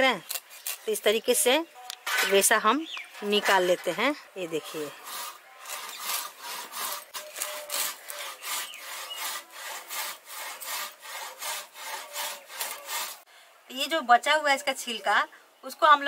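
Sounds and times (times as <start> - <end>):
saw rasping back and forth: 3.2 - 13.3.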